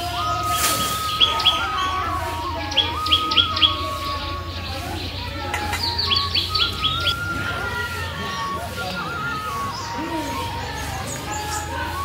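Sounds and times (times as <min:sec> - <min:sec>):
birds chirping: 0:00.0 - 0:12.0
soft background melody: 0:00.0 - 0:12.0.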